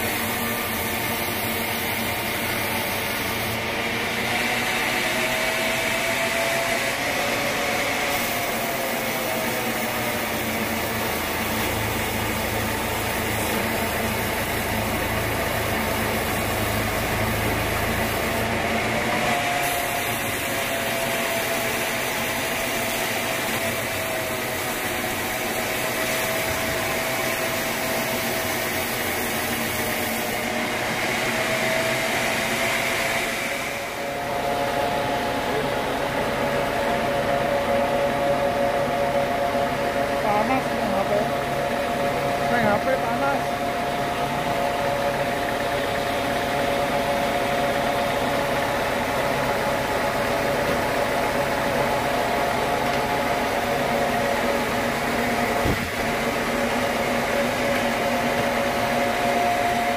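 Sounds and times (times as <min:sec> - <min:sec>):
band saw whirring: 0:00.0 - 0:59.9.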